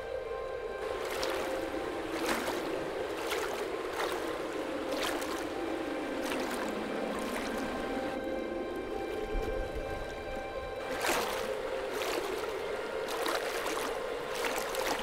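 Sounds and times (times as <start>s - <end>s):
steady drone: 0.0s - 15.0s
stick swishing through liquid: 0.8s - 5.6s, 6.2s - 7.9s, 10.8s - 15.0s
dye liquid sloshing and splashing: 0.8s - 8.2s, 9.0s - 15.0s.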